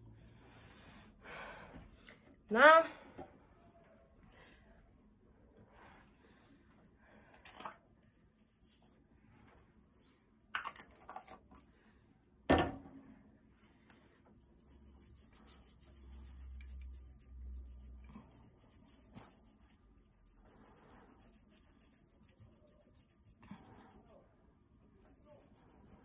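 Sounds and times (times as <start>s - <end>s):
scratchy rubbing on lips: 14.5s - 24.2s, 25.1s - 26.0s.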